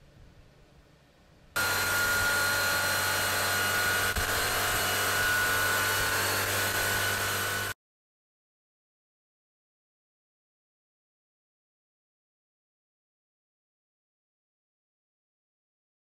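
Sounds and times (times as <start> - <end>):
engine running on dynamometer: 1.6 - 7.8.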